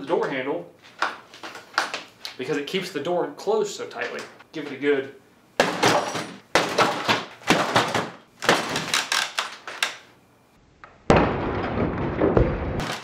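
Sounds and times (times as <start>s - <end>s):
kicks thudding on wooden door: 5.6s - 8.9s
door and frame rattling: 5.6s - 10.0s.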